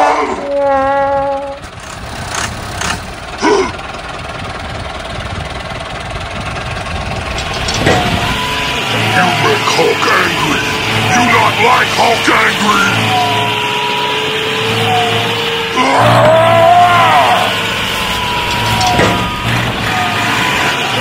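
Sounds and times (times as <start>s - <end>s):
tractor engine running: 0.0s - 21.0s.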